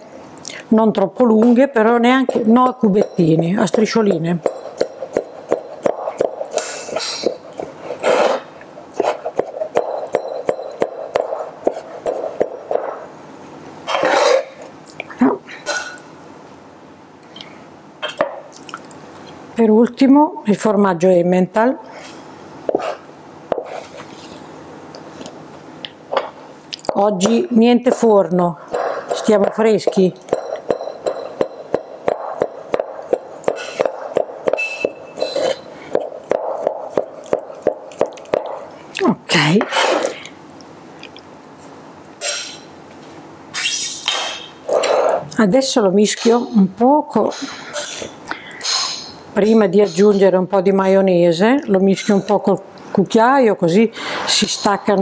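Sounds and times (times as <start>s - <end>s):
knife chopping on cutting board: 3.7s - 7.4s, 9.0s - 12.9s, 28.7s - 35.0s, 35.9s - 38.6s.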